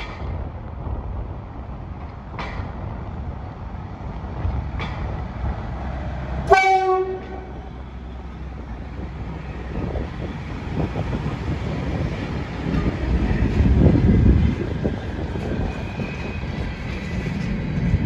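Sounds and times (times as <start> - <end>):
train rumbling on rails: 0.0 - 18.0
locomotive horn blast: 6.5 - 7.7.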